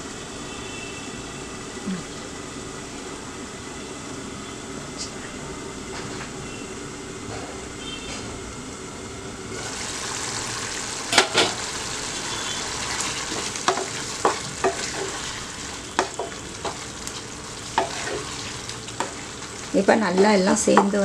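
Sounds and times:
gravy sizzling and bubbling in pan: 0:09.5 - 0:21.0
wooden spatula knocking on pan: 0:16.0 - 0:16.8, 0:20.2 - 0:21.0.

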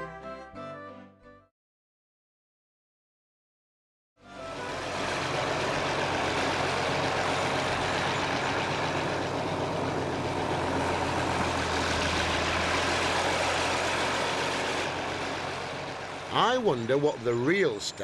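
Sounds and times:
tractor diesel engine running: 0:04.2 - 0:18.0.

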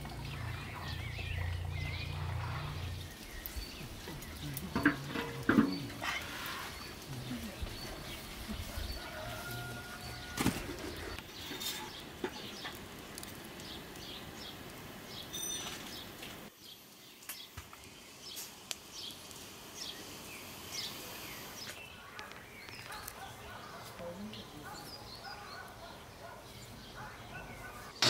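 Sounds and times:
syrup boiling in a pan: 0:00.0 - 0:10.0
small birds chirping: 0:00.0 - 0:28.0
wood fire crackling: 0:00.0 - 0:28.0.

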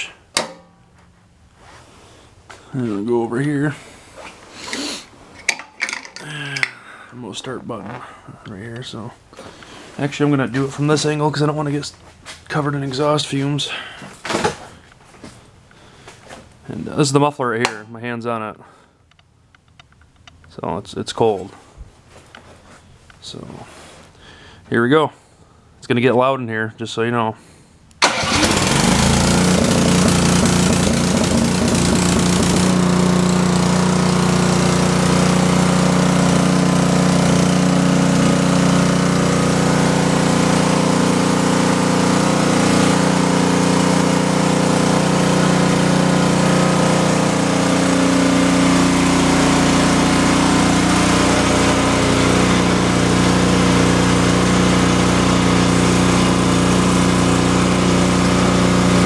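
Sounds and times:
snow blower engine running: 0:28.0 - 0:59.0.

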